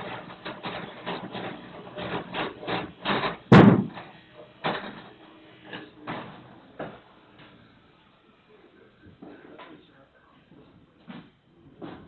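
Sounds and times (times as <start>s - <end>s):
machine clattering: 0.0s - 5.2s
knocks: 3.1s - 4.1s
loud bang: 3.5s - 4.0s.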